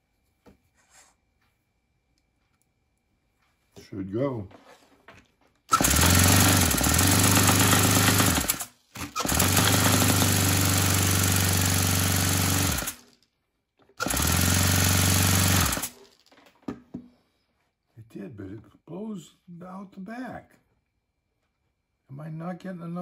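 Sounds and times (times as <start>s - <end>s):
electric starter spinning engine: 5.7s - 13.2s, 14.0s - 16.1s.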